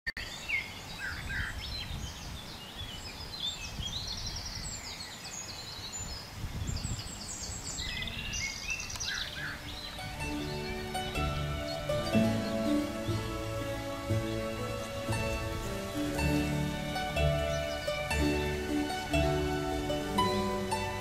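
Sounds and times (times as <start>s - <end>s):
songbirds singing and chirping: 0.1s - 21.0s
soft music: 9.6s - 21.0s.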